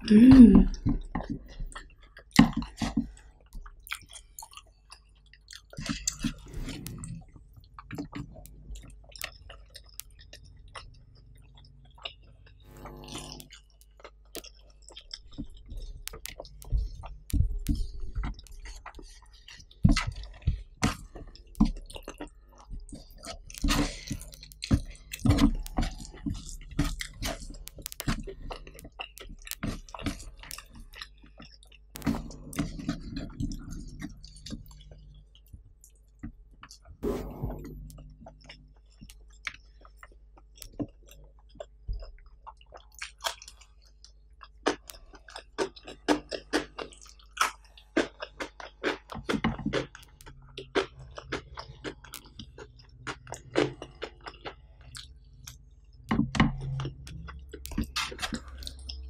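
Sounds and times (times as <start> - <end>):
person humming: 0.0 - 0.9
wet chewing and lip smacks: 0.7 - 12.7, 13.4 - 37.0, 37.8 - 59.0.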